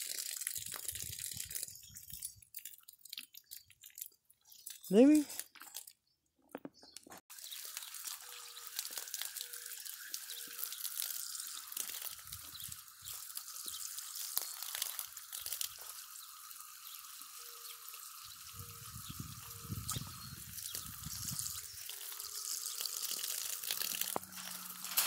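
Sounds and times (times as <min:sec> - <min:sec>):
water jetting from hose nozzle: 0:07.3 - 0:25.0.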